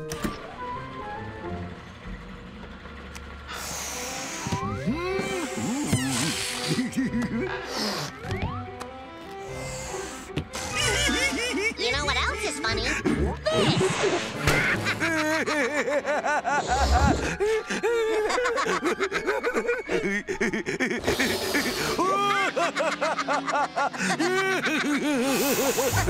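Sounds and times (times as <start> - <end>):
gas hissing from hose: 3.5 - 6.8, 9.4 - 10.9, 21.0 - 22.0
cartoon characters laughing: 4.9 - 8.0, 10.6 - 26.0.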